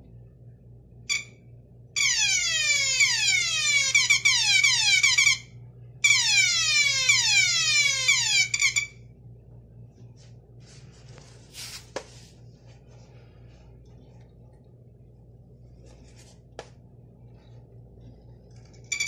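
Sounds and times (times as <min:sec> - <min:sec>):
electronic alarm sounder: 0:01.1 - 0:01.4, 0:02.0 - 0:09.0.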